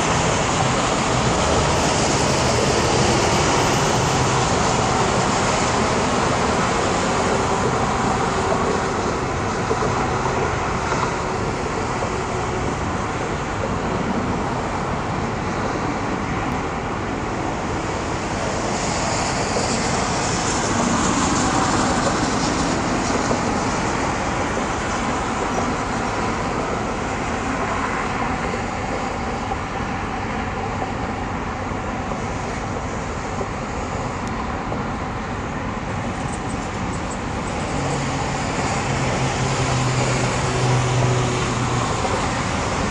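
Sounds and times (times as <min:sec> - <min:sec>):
highway traffic hum: 0:00.0 - 0:42.9.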